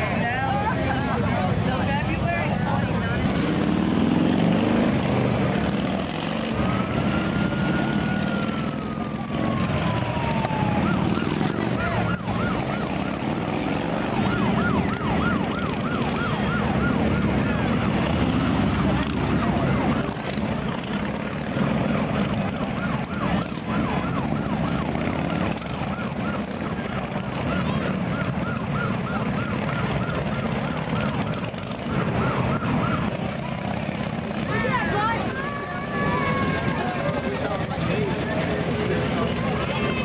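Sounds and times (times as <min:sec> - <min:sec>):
motorcycle engines passing: 0:00.0 - 0:40.0
siren yelping: 0:01.5 - 0:40.0.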